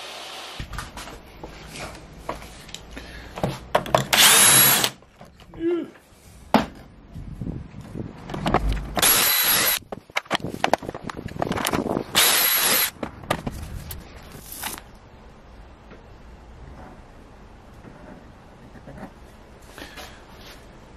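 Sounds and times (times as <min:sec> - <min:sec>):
drill boring into wood: 0:04.1 - 0:05.0, 0:09.0 - 0:09.8, 0:12.2 - 0:12.9.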